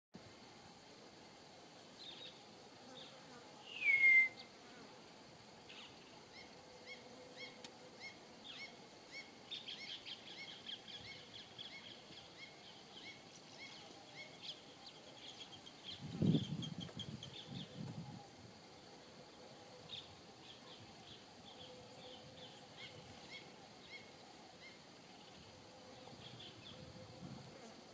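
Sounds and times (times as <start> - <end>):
bird falling whistle: 3.7 - 4.4.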